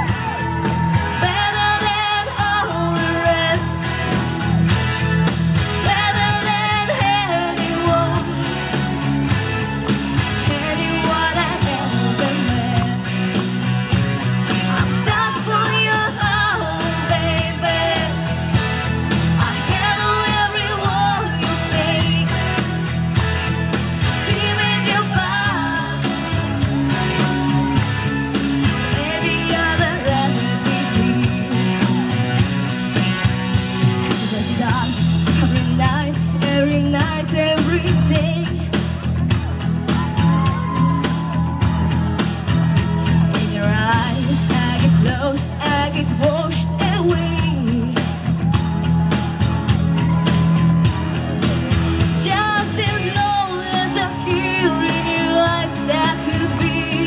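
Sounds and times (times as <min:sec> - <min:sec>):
loud backing music: 0:00.0 - 0:57.0
woman singing into microphone: 0:01.0 - 0:04.1, 0:05.8 - 0:08.7, 0:10.4 - 0:13.1, 0:14.6 - 0:18.4, 0:19.4 - 0:22.4, 0:24.2 - 0:26.1, 0:28.9 - 0:32.0, 0:34.2 - 0:38.7, 0:43.3 - 0:48.1, 0:52.1 - 0:57.0.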